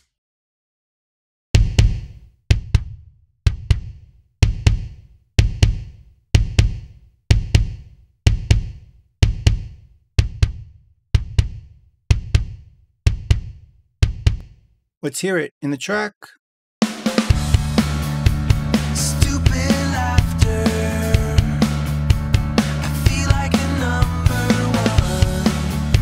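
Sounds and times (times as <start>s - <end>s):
layered kick drum hits: 1.6s - 14.5s.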